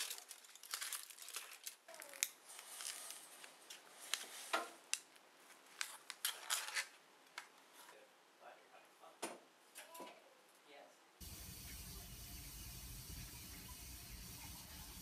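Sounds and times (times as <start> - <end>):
aluminium foil crinkling: 0.0 - 7.0.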